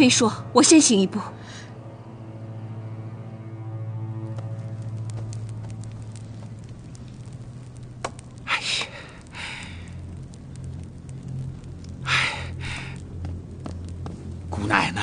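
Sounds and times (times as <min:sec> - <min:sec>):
fire crackling: 0:00.0 - 0:15.0
low hum: 0:00.0 - 0:15.0
loud breathy hisses: 0:08.9 - 0:09.9.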